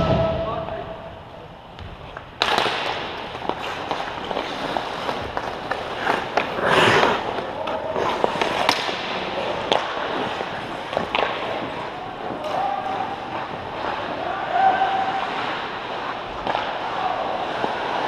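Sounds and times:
hockey sticks and puck clacking: 0:01.8 - 0:18.0
skates scraping on ice: 0:02.0 - 0:18.0.

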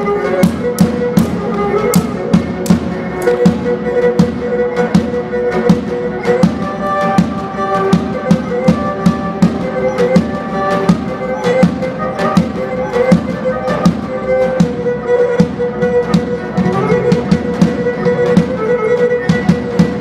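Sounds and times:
bowed lyra melody: 0:00.0 - 0:20.0
drum beat: 0:00.4 - 0:20.0.

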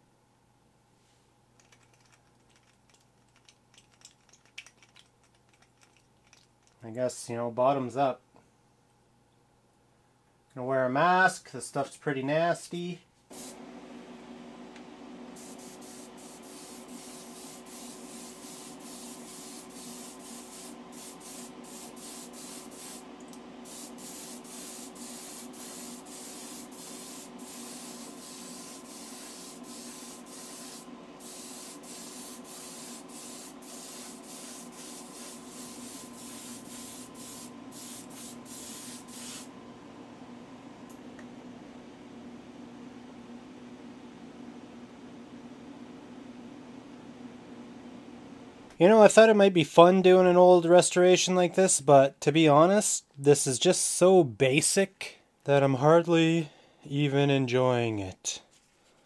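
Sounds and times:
airbrush hissing bursts: 0:13.3 - 0:13.6, 0:15.4 - 0:39.5.

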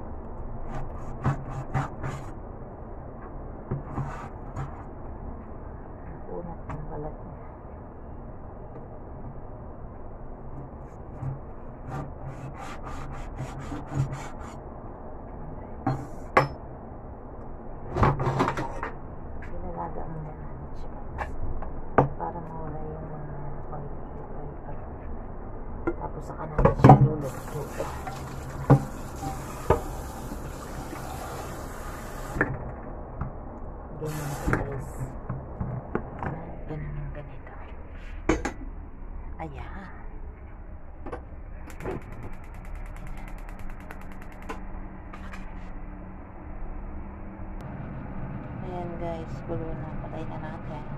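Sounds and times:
tap running into sink: 0:27.3 - 0:32.5.

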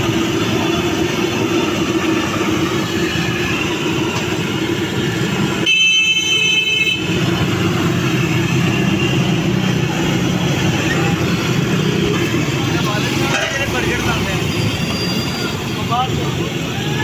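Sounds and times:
road traffic noise: 0:00.0 - 0:17.0
vehicle horn: 0:05.6 - 0:07.4.

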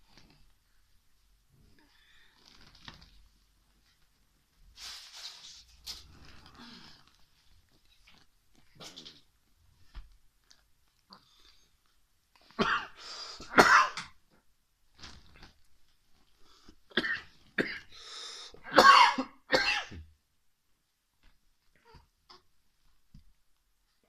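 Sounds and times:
person coughing and clearing throat: 0:12.6 - 0:14.2, 0:16.9 - 0:17.9, 0:18.6 - 0:20.1.

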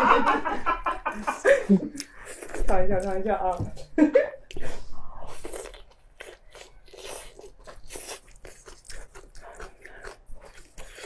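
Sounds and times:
mouth chewing meat: 0:04.5 - 0:11.0.

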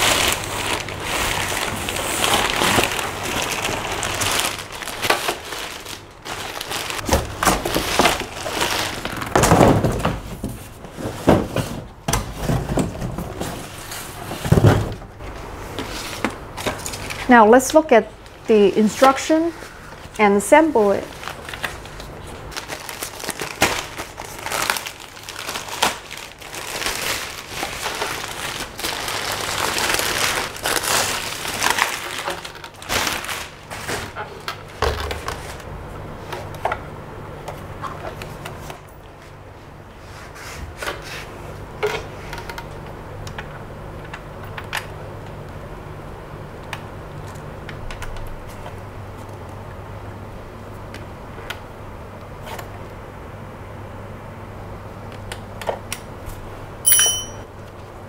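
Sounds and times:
plastic wrapping rustling: 0:00.0 - 0:17.4, 0:20.7 - 0:35.7.

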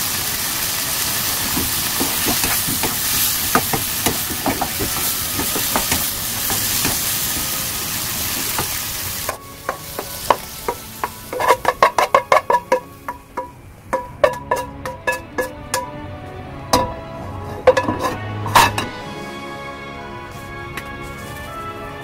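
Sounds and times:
vegetables sizzling in oil: 0:00.0 - 0:16.0
spatula scraping pan: 0:01.4 - 0:16.0, 0:16.8 - 0:19.0
wooden spatula clacking on pan: 0:01.5 - 0:07.5, 0:08.3 - 0:16.0, 0:17.6 - 0:18.9.

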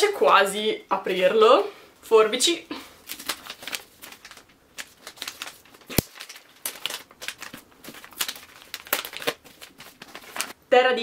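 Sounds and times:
paper wrapping rustling and crinkling: 0:03.0 - 0:10.6.

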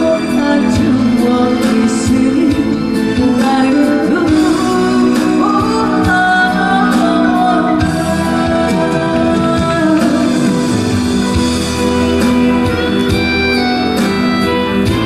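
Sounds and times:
woman singing slow song: 0:00.0 - 0:11.3
instrumental accompaniment with beat: 0:00.0 - 0:15.0.

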